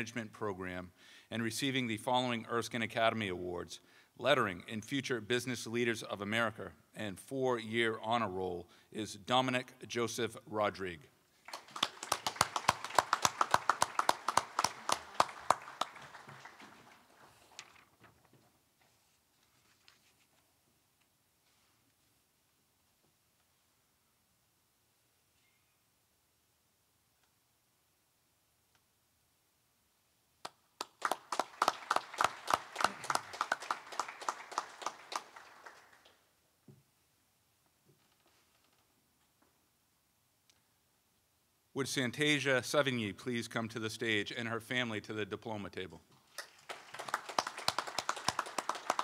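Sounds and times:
people clapping: 11.4s - 17.7s, 30.4s - 36.3s, 46.3s - 49.0s.

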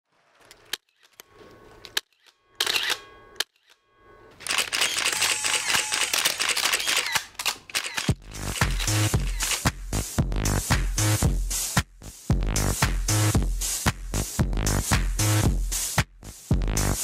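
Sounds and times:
camera shutters clicking: 1.9s - 3.7s, 4.4s - 9.7s
electronic dance music: 8.2s - 17.0s.

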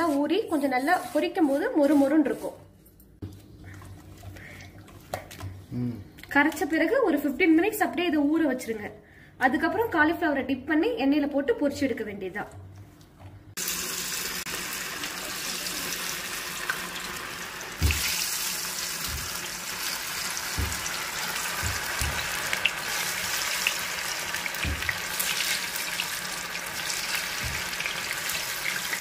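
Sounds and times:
oil sizzling while deep-frying: 13.6s - 29.0s.

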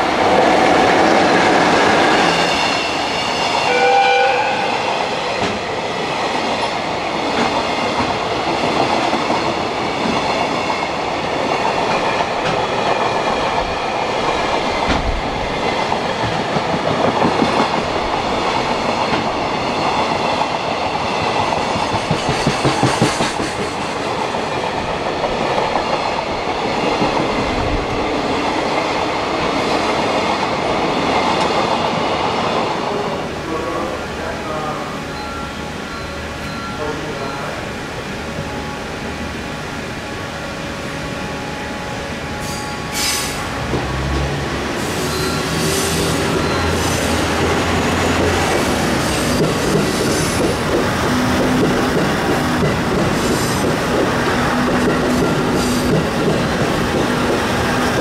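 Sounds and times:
train rumble: 0.0s - 58.0s
horn-like tone: 3.6s - 4.9s
train wheels clattering: 4.8s - 32.7s, 42.4s - 58.0s.

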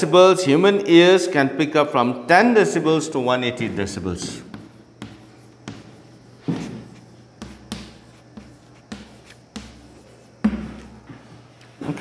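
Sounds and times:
chalk tapping and scraping on blackboard: 3.7s - 11.3s.

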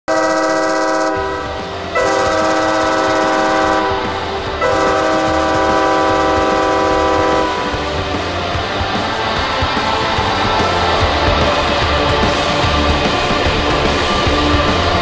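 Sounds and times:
goal horn blasts: 0.1s - 7.8s.

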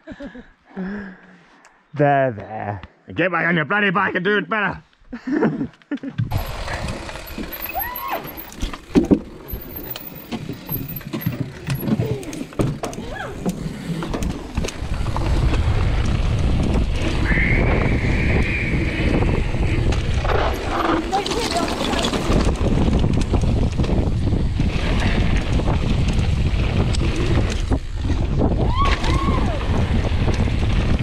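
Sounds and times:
bike rattling over trail: 6.2s - 31.0s
tyres rolling on gravel: 6.3s - 17.2s, 18.7s - 28.5s
high squeal: 7.5s - 8.5s, 17.2s - 19.5s
wind on microphone: 13.0s - 31.0s.

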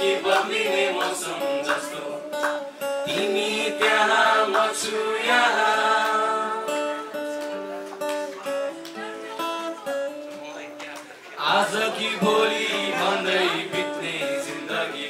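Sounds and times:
people singing into microphones: 0.0s - 7.2s, 11.4s - 15.0s
acoustic guitar: 0.0s - 15.0s.

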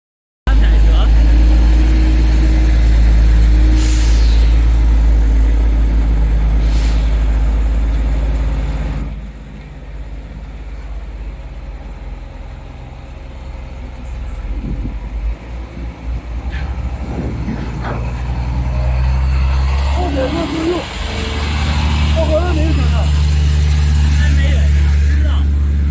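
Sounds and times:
diesel truck engines idling: 0.5s - 25.9s
short air hisses: 3.7s - 4.7s, 6.6s - 7.3s.

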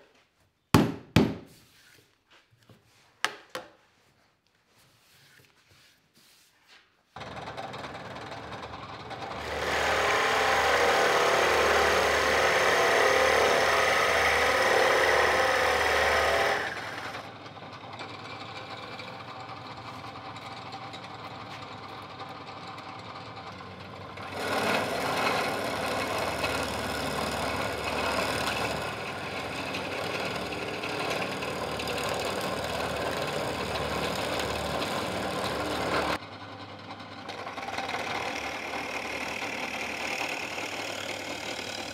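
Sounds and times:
drill press boring into wood: 7.2s - 17.4s, 20.9s - 41.9s.

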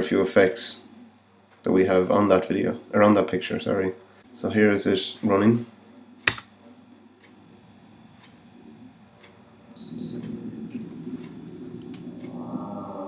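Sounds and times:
synthesized drone: 8.4s - 13.0s.

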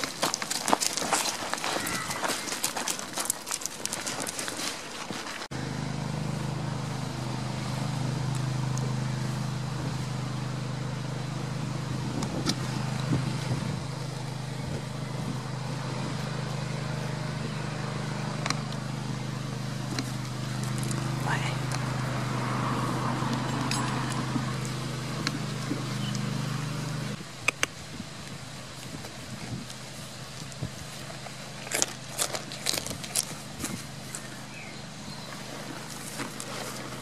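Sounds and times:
footsteps on gravel: 0.0s - 5.6s, 11.5s - 27.2s, 28.8s - 37.0s
hooves on gravel: 0.0s - 27.4s, 28.0s - 37.0s
engine humming: 0.0s - 37.0s.

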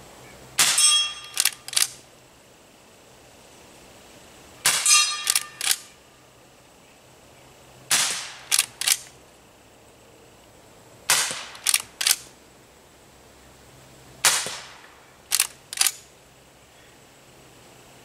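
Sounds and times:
bullet ringing steel target: 0.6s - 1.4s, 4.6s - 5.9s
rifle shots: 0.6s - 2.0s, 4.6s - 5.9s, 7.9s - 9.1s, 11.1s - 12.3s, 14.2s - 16.0s
rifle lever clicks: 1.2s - 2.0s, 5.2s - 5.9s, 8.5s - 9.1s, 11.6s - 12.3s, 15.3s - 16.0s.

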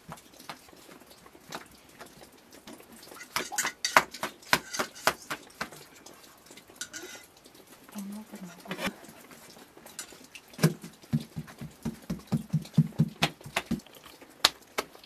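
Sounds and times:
sharp taps and clicks: 3.2s - 5.9s, 10.6s - 15.0s.

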